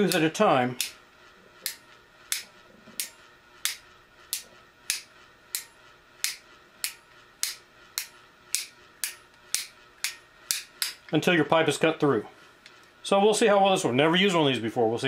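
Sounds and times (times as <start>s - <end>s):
pipe cutter ratchet clicking: 0.1s - 1.0s.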